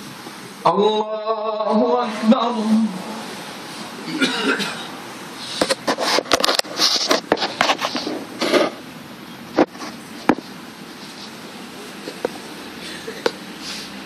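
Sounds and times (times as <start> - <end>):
room noise: 1.4 - 14.0
people shuffling: 3.3 - 8.9, 9.5 - 14.0
clothes rustling: 5.4 - 8.8, 9.6 - 12.5.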